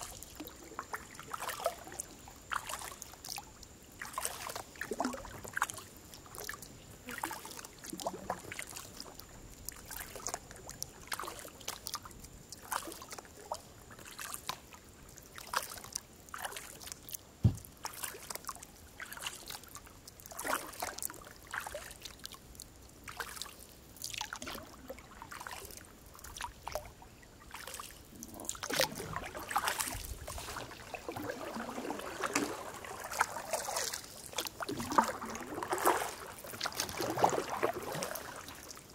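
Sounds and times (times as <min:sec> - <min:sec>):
kayak paddle splashing: 0:00.0 - 0:22.4, 0:23.0 - 0:38.9
water dripping off paddle: 0:27.5 - 0:38.8.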